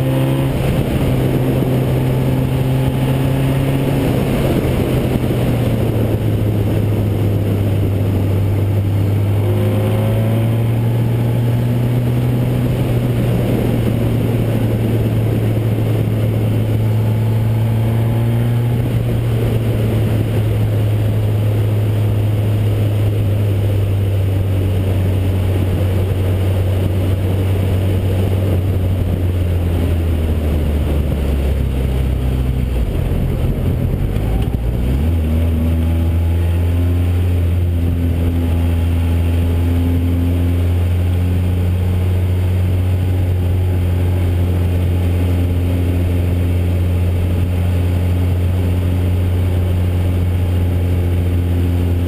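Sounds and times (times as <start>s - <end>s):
race car engine running hard: 0.0s - 52.0s
wind rush: 0.0s - 52.0s.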